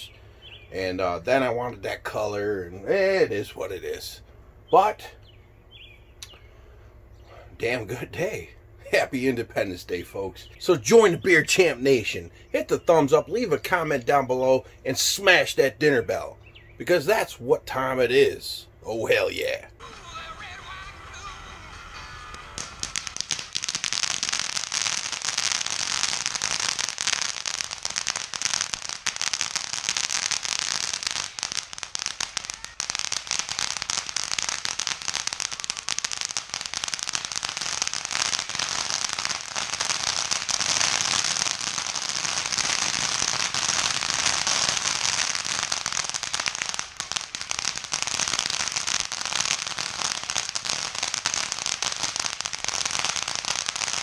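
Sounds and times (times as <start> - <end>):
firework crackling and hissing: 19.8 - 54.0.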